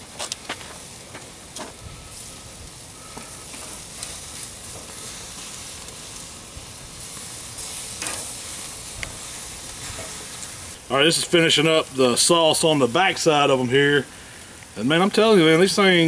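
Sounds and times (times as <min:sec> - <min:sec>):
ribs sizzling on grill: 0:00.0 - 0:16.0
metal tongs clicking on grate: 0:08.0 - 0:08.3.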